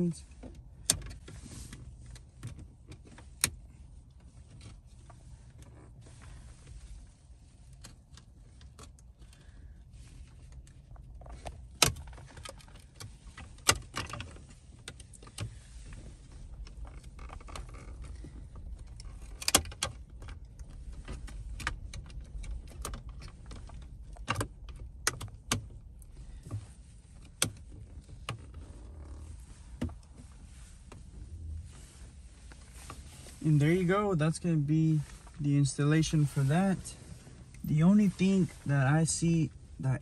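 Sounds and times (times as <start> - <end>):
low steady rumble: 0.0 - 40.0.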